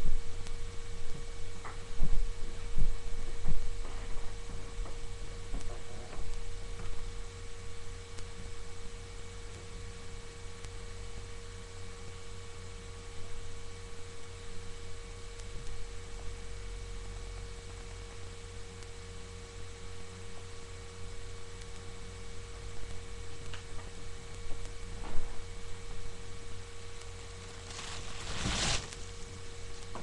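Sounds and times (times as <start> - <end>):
electrical hum with high tone: 0.0 - 30.0
faint hiss: 27.0 - 29.9.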